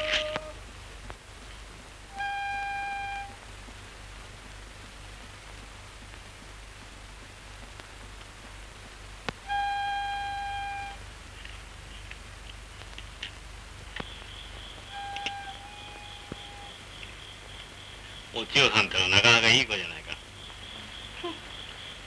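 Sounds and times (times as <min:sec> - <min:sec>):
film soundtrack hiss and hum: 0:00.0 - 0:22.0.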